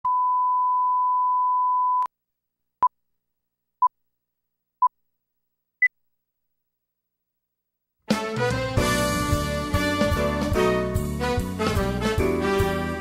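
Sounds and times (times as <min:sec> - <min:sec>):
reference tone: 0:00.0 - 0:02.1.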